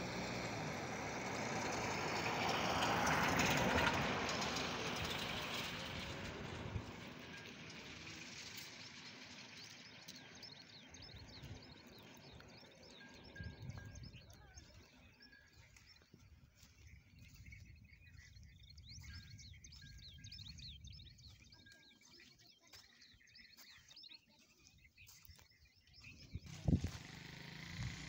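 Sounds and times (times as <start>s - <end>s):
distant vehicle passing: 0.0s - 16.8s, 26.3s - 28.0s
faint bird chirps: 9.3s - 26.8s.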